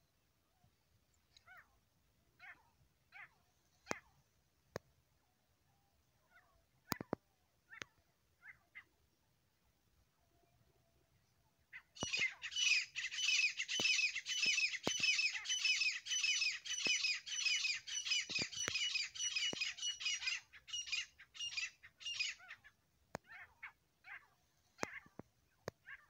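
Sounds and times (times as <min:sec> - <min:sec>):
francolins calling harshly: 0:11.8 - 0:25.1.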